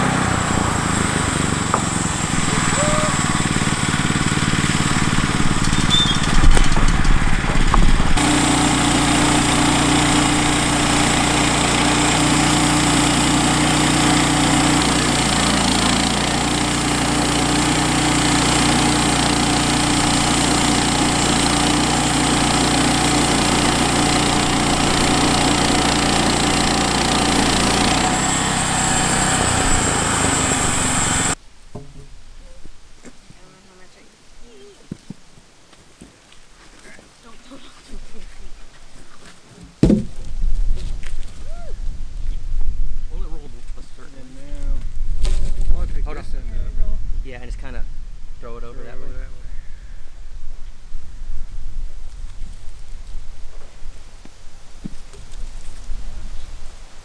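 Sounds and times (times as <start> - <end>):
bandsaw mill cutting a log: 0.0 - 31.4
loud knocks: 39.8 - 40.2.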